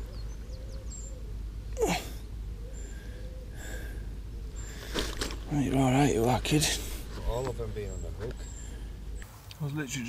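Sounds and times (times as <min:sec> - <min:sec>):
person's vocal sound: 0:01.8 - 0:02.2.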